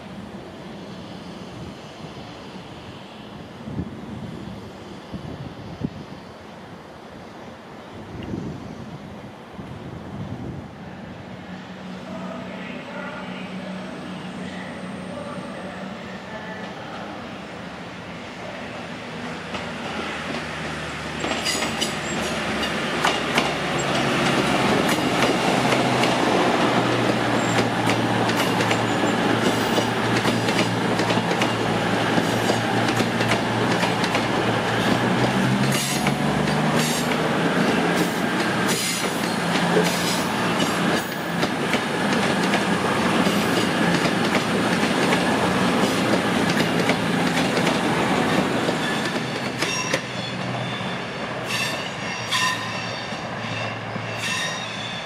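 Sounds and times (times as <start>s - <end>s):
diesel train engines running: 8.8s - 54.9s.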